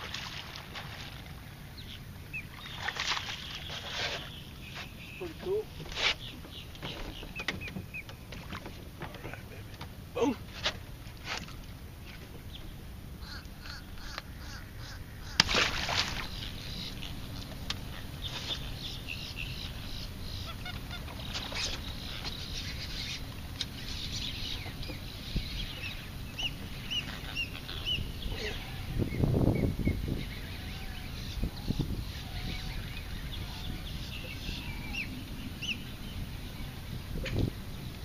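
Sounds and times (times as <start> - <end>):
water birds honking: 0.0 - 38.0.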